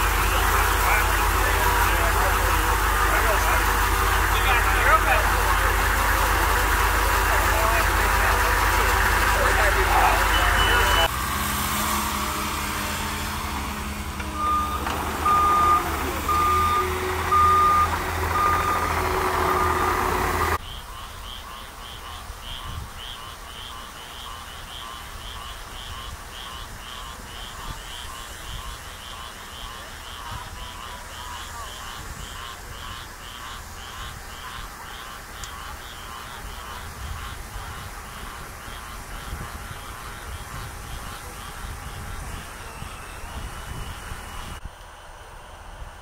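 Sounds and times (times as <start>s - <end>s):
frogs and insects calling: 0.0s - 11.5s, 12.4s - 44.6s
engine idling: 0.0s - 20.6s, 23.6s - 46.0s
reversing alarm beeps: 7.8s - 11.4s, 14.3s - 20.6s, 40.1s - 44.6s.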